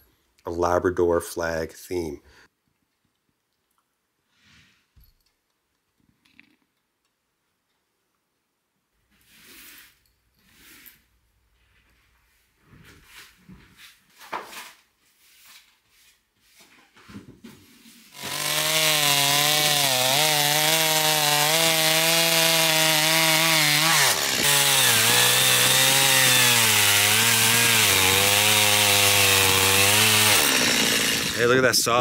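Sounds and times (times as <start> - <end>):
chainsaw cutting log: 18.1 - 32.0.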